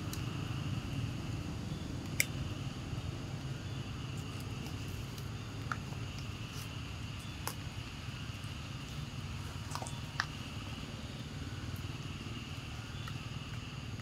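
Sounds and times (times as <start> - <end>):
faint high steady hum: 0.0 - 14.0.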